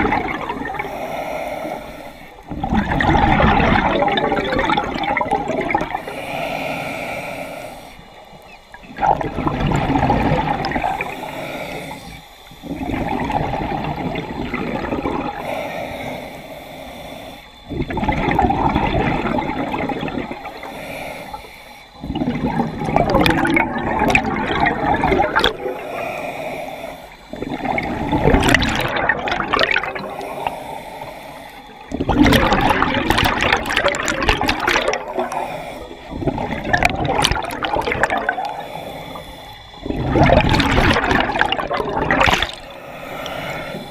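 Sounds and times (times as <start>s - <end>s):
diver inhaling through regulator: 0.0s - 43.9s
exhaled bubbles gurgling: 0.0s - 43.9s.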